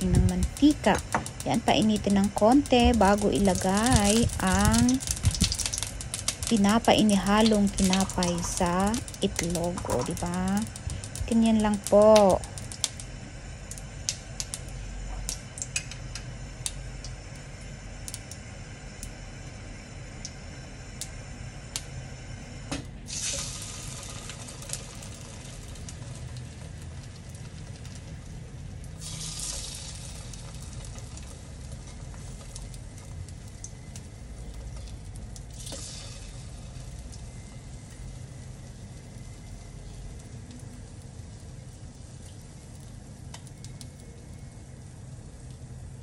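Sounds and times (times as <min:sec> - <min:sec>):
bread sizzling in hot oil: 0:00.0 - 0:46.0.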